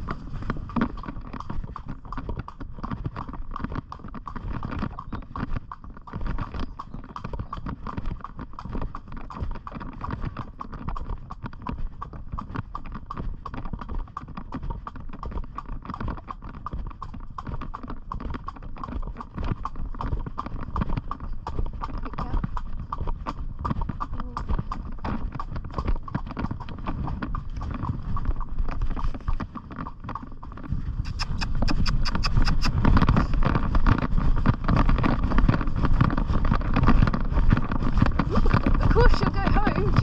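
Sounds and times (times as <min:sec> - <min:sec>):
pony hooves clip-clopping: 0:00.0 - 0:40.0.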